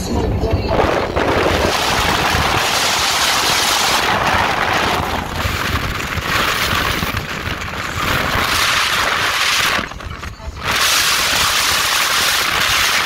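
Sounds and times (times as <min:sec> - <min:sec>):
low engine rumble: 0:00.0 - 0:13.0
wind rushing over microphone: 0:00.0 - 0:13.0.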